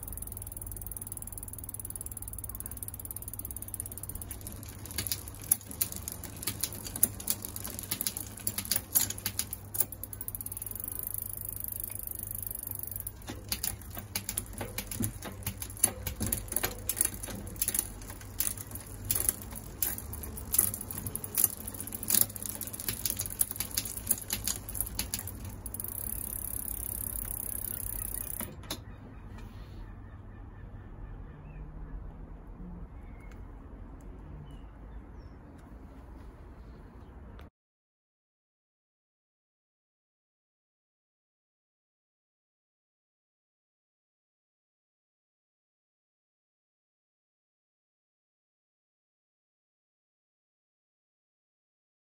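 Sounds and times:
bicycle chain and cassette turning: 0.0s - 28.6s
derailleur clicks and chain clatter: 0.0s - 28.8s.

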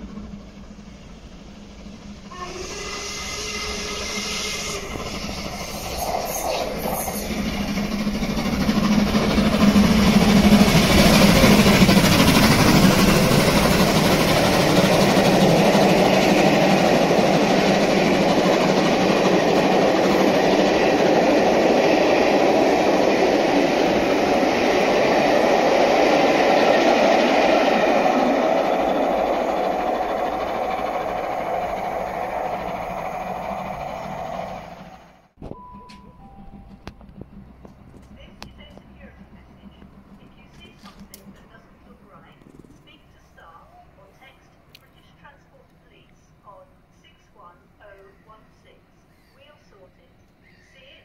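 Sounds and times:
steam locomotive passing: 0.0s - 51.0s
wheels clattering on rails: 4.9s - 42.9s.

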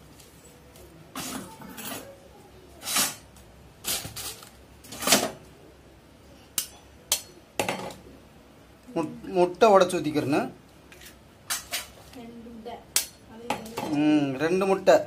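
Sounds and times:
utensils scraping a metal bowl: 2.8s - 3.2s.

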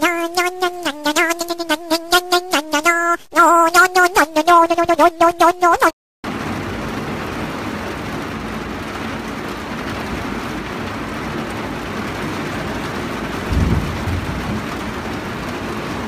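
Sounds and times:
steady rain hiss: 6.3s - 16.0s.

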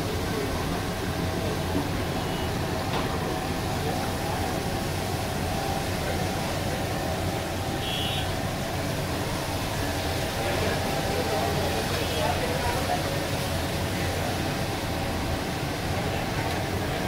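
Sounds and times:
fish sizzling in hot oil: 4.1s - 16.9s.

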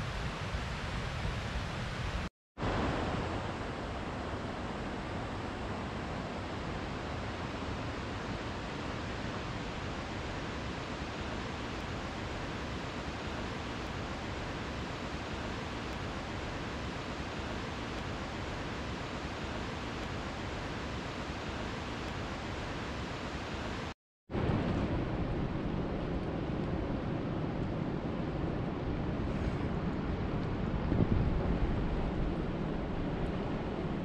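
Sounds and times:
water rushing: 0.0s - 26.3s.

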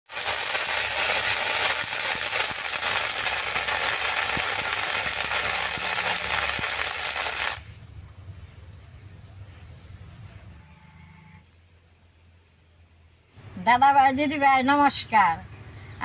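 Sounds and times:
seeds crackling and popping in sand: 0.1s - 7.7s.

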